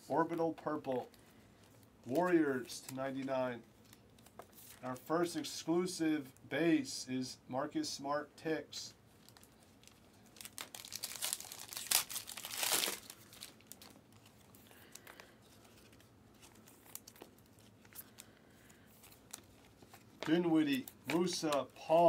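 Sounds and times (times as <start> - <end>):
plastic wrapper crinkling and tearing: 9.1 - 22.0
cards clicking and flicking: 20.2 - 21.7.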